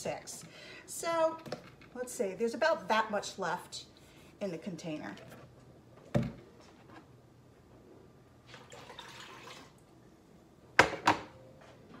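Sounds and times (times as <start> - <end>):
juice pouring into pot: 8.5 - 9.9.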